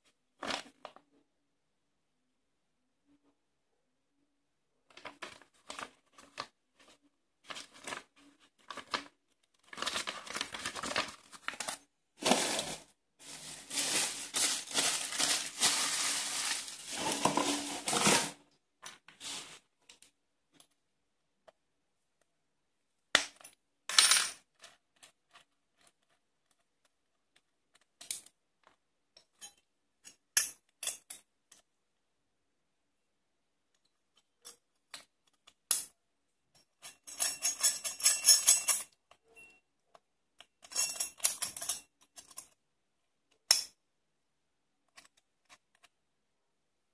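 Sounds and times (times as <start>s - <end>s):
rustling: 4.9s - 18.4s, 19.1s - 19.7s.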